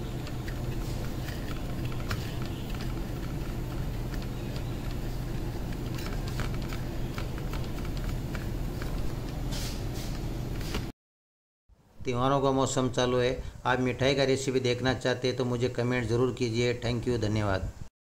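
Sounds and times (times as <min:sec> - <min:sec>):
fingers rolling balls on plate: 0:00.0 - 0:09.4
low background hum: 0:00.0 - 0:10.9.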